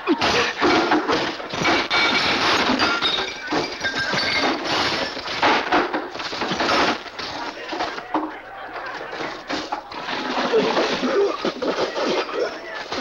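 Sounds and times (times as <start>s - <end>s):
crashes and thuds: 0.1s - 8.0s.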